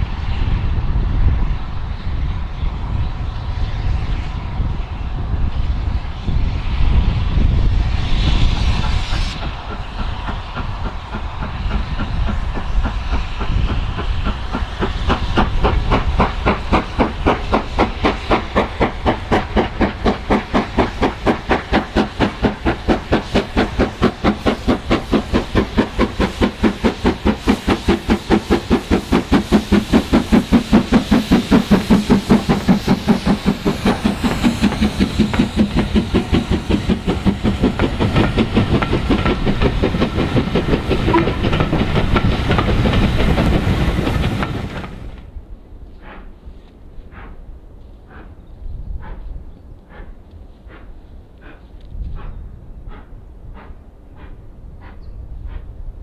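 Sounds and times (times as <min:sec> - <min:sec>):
hiss of steam: 0:00.0 - 0:45.3, 0:49.0 - 0:56.0
steam locomotive exhaust beats: 0:00.0 - 0:56.0.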